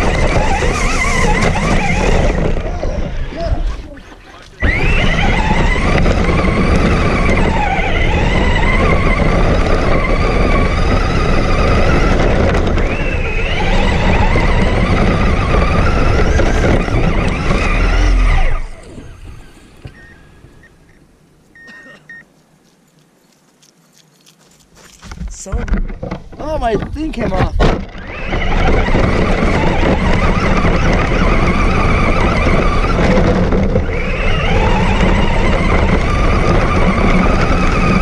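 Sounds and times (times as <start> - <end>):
rc car motor whining: 0.0 - 21.0, 26.4 - 38.0.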